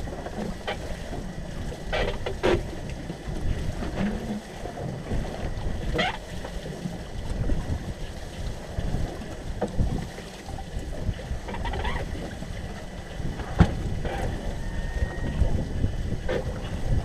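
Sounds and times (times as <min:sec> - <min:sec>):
waves slapping boat: 0:00.0 - 0:17.0
wind buffeting microphone: 0:06.8 - 0:17.0
gear knocking in boat: 0:11.0 - 0:17.0.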